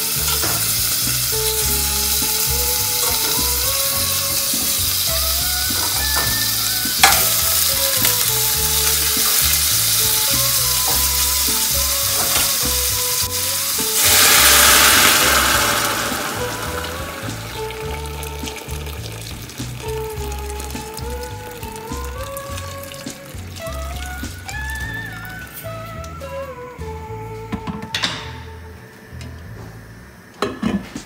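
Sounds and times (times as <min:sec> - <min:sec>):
boiling water pouring into pot: 0:00.0 - 0:25.4
food sizzling in hot oil: 0:00.0 - 0:25.6.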